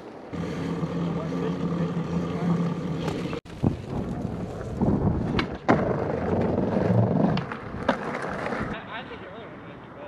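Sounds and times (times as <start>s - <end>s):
bike tyres humming on asphalt: 0.0s - 8.8s
skateboard wheels rolling on concrete: 0.0s - 10.0s
skateboard clacks: 5.2s - 8.8s.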